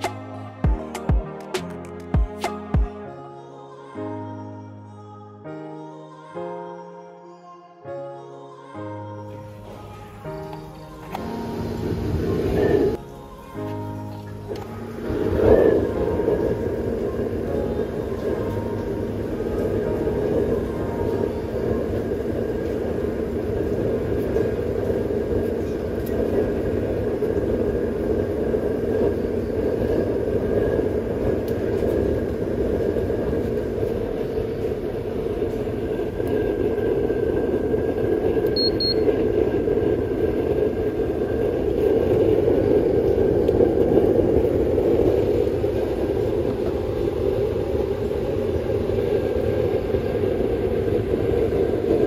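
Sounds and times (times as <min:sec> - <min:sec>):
roar of fan and flame: 0:11.2 - 0:13.0, 0:14.5 - 0:52.0
thermometer high beeps: 0:38.5 - 0:39.2.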